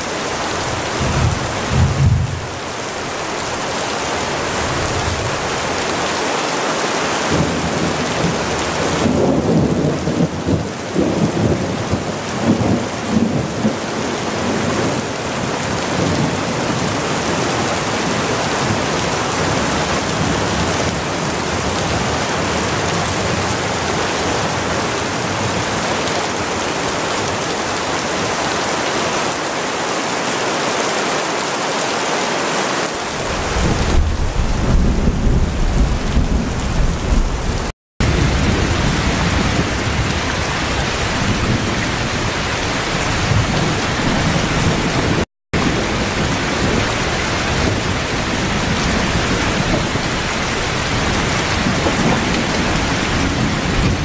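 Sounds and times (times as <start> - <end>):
rain falling steadily: 0.0 - 54.0.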